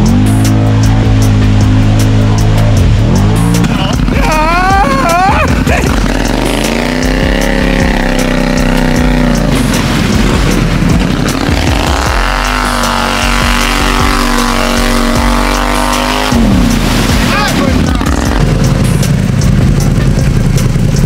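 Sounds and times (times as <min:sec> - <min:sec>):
atv engine revving hard: 0:00.0 - 0:21.0
mud spraying off tyres: 0:02.8 - 0:19.4.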